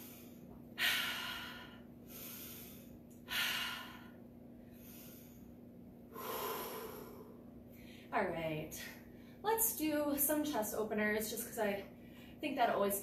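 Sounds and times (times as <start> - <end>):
woman breathing deeply: 0.0 - 8.1.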